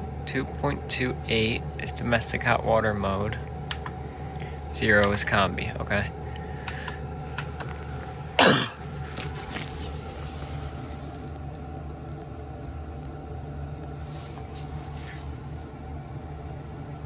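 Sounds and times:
boiler humming: 0.0 - 17.0
person coughing: 8.4 - 8.8.

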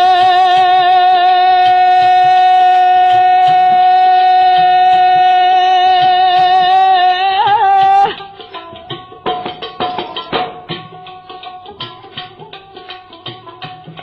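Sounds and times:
man singing long high note: 0.0 - 8.2.

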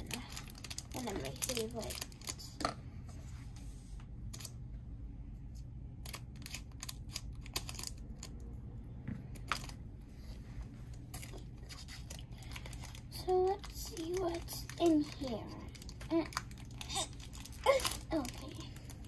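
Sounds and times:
foil card packs rustling: 0.0 - 2.6, 11.2 - 19.0
low steady hum: 0.0 - 19.0.

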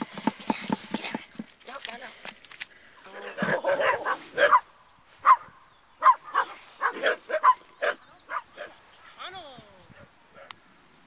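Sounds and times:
dog barking: 3.4 - 8.8.

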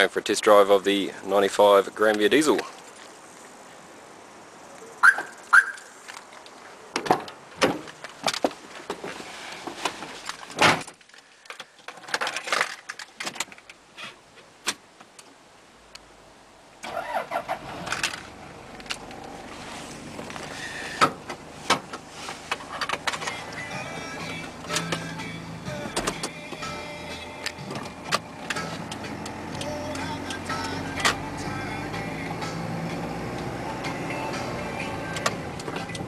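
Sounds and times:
diesel engine starting and idling: 16.8 - 36.0.

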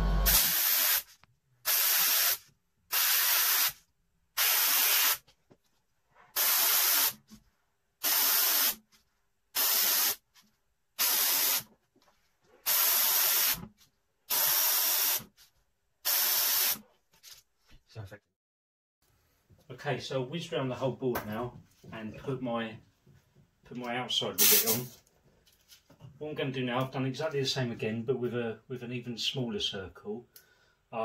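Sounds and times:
airbrush spraying hiss: 1.7 - 3.8, 6.4 - 7.2, 9.6 - 10.2, 12.6 - 13.6.

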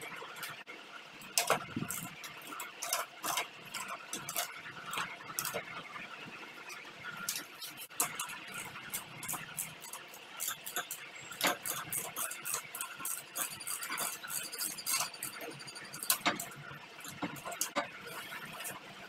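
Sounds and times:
ratchet and tools clicking: 7.2 - 18.8.

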